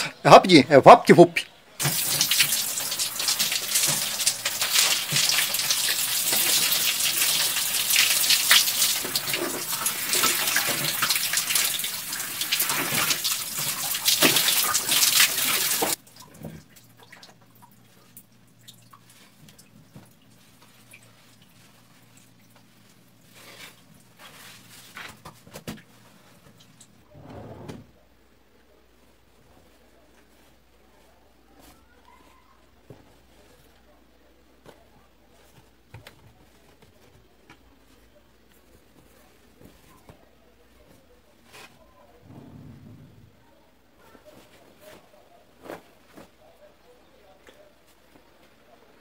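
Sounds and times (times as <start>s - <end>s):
shower water spraying: 1.8s - 16.0s.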